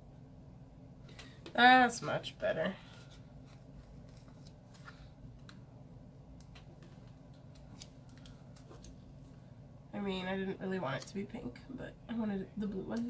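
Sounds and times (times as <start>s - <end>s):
paper sticker sheets rustling: 2.8s - 5.6s.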